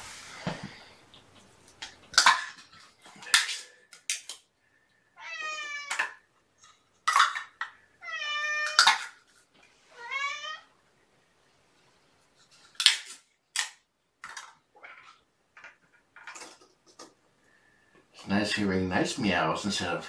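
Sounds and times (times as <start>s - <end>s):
cat meowing: 5.2s - 6.2s, 8.0s - 9.0s, 9.9s - 10.7s.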